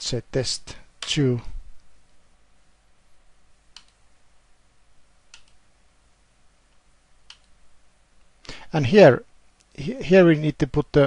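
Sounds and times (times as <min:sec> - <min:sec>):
low hiss: 0:00.0 - 0:11.0
faint mouse clicks: 0:03.7 - 0:04.0, 0:05.3 - 0:05.6, 0:06.7 - 0:07.6.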